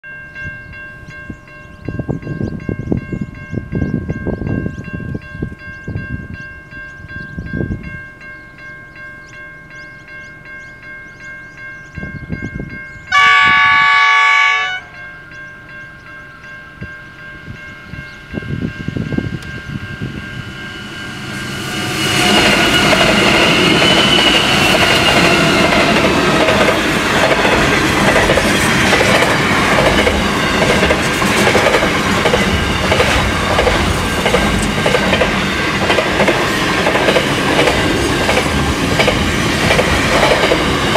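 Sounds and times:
train horn: 13.1 - 15.0, 20.5 - 25.6
freight wagons clickety-clack: 22.5 - 40.9.

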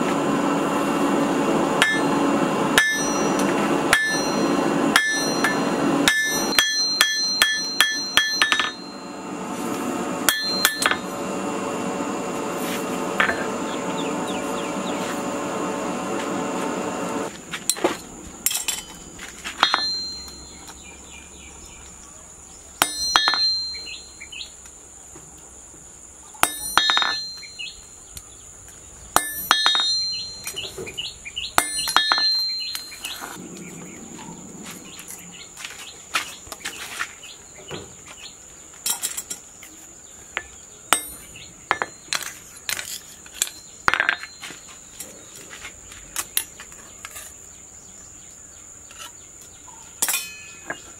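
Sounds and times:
hammer striking punch on anvil: 1.8 - 2.2, 2.8 - 9.0, 10.3 - 11.1, 19.6 - 20.6, 22.8 - 24.0, 26.4 - 27.5, 29.2 - 30.9, 31.6 - 33.4, 40.9 - 42.0
high insect drone: 16.4 - 50.9.

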